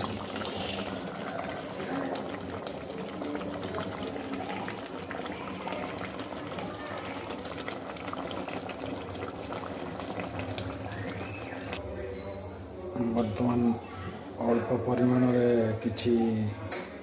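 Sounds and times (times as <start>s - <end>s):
meat sizzling in a pot: 0.0s - 11.8s.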